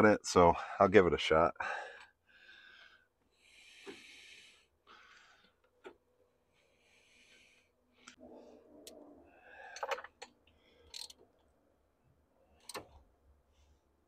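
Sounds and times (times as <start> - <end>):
metal parts clicking: 9.8 - 11.2.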